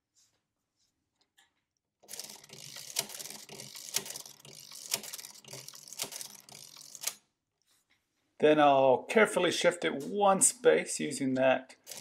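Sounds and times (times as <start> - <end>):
mechanical calculator gears clattering: 2.0 - 7.2, 11.8 - 12.0
sharp crank click: 2.1 - 7.2.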